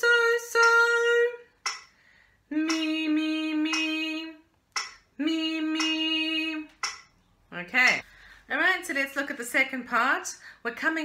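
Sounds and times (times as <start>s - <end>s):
woman singing unaccompanied: 0.0s - 1.5s, 2.5s - 4.5s, 5.1s - 6.8s.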